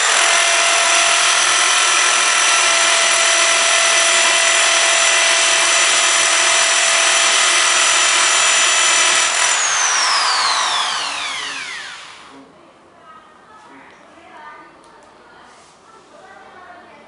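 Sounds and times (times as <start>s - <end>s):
drill bit grinding into glass: 0.0s - 12.2s
drill motor spinning down: 0.0s - 12.3s.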